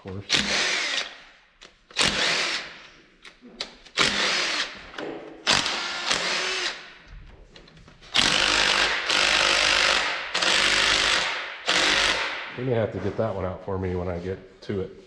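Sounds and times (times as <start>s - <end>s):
impact wrench bursts: 0.3s - 1.3s, 1.9s - 2.8s, 3.8s - 4.8s, 5.4s - 6.9s, 8.1s - 12.6s.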